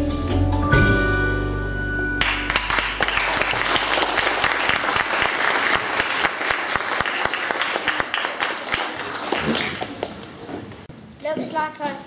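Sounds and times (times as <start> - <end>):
hands clapping applause: 2.2 - 10.2.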